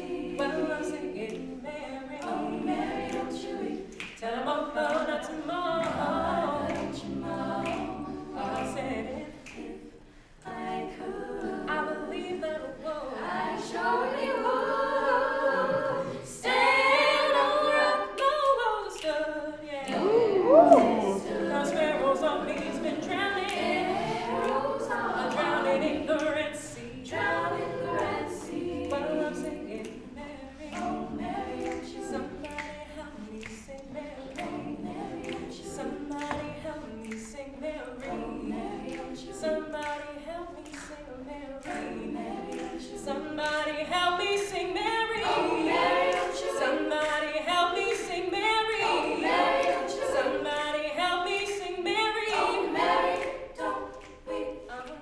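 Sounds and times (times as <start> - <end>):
women singing harmonies: 0.0 - 55.0
female soloist singing: 15.6 - 55.0.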